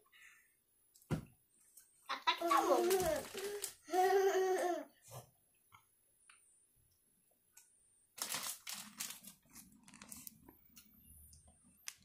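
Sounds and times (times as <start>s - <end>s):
plastic bag crinkling: 2.4s - 3.8s, 8.2s - 10.5s.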